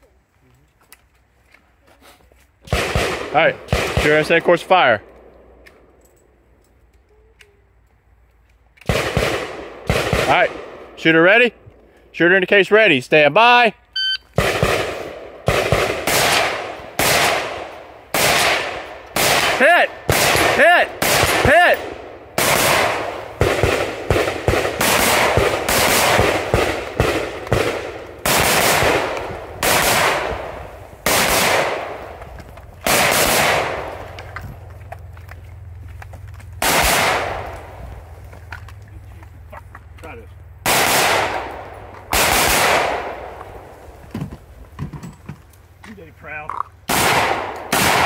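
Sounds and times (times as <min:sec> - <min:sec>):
shotgun firing: 0:02.7 - 0:04.4, 0:08.9 - 0:10.9, 0:14.4 - 0:32.2, 0:32.8 - 0:34.2, 0:36.6 - 0:37.8, 0:40.6 - 0:43.4, 0:46.9 - 0:48.0.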